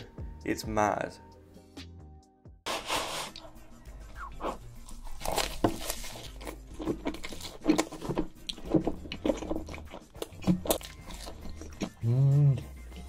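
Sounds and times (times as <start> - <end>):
person chewing pizza: 4.1 - 13.0.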